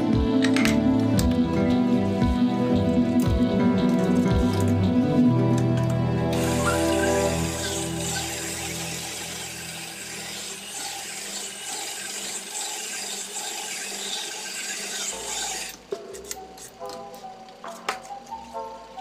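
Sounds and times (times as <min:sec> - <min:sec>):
boring machine rasping hiss: 0:06.3 - 0:15.8.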